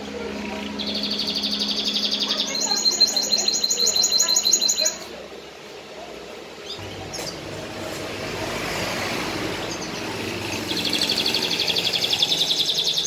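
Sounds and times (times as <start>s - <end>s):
canary singing: 0.0s - 5.2s, 9.4s - 13.0s.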